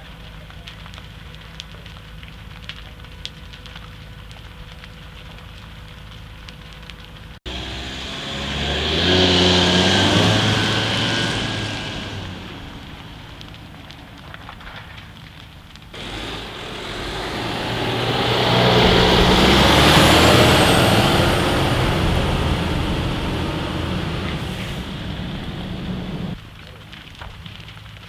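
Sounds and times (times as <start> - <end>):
building fire crackling: 0.0 - 28.0
van engine pulling away: 7.5 - 14.3, 16.0 - 26.4.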